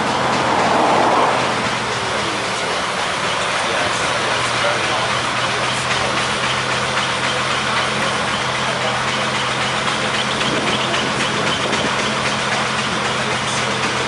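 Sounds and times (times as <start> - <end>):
rushing noise: 0.0 - 5.8
bus engine running under load: 0.0 - 14.0.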